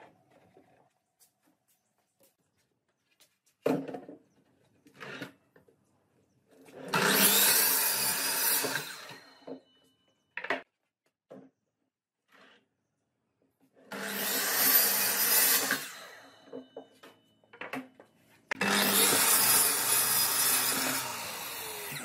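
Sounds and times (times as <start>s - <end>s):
miter saw cutting wood: 6.7s - 9.6s, 13.9s - 16.8s, 18.5s - 22.0s.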